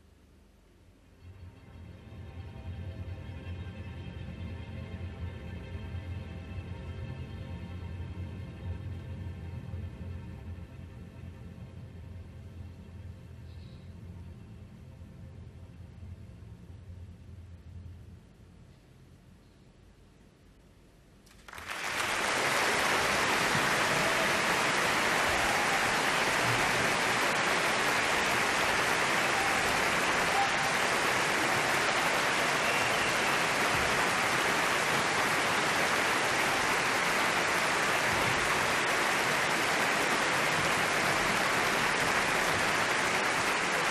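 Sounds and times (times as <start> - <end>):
audience applauding: 21.3 - 43.9.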